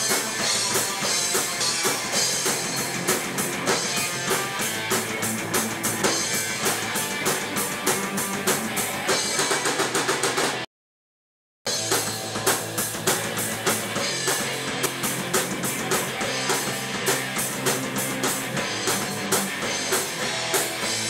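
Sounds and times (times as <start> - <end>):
electric guitars: 0.0 - 10.6, 11.7 - 21.0
drum kit steady beat: 0.0 - 10.7, 11.7 - 21.0.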